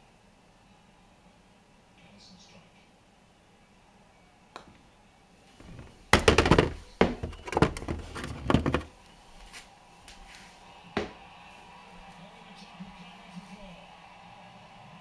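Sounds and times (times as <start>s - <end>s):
golf ball dropping into cup: 5.6s - 8.9s
plastic knocks and rattles: 5.6s - 8.9s.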